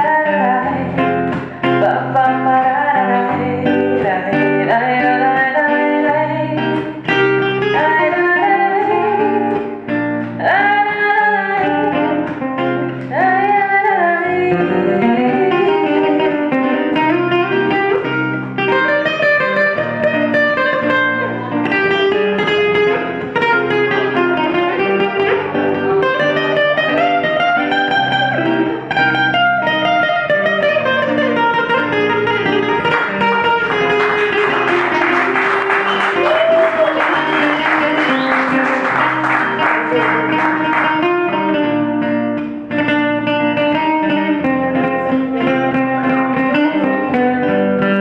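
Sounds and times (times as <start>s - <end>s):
woman singing: 0.0s - 17.8s, 43.6s - 47.3s
classical guitar plucked: 0.0s - 48.0s.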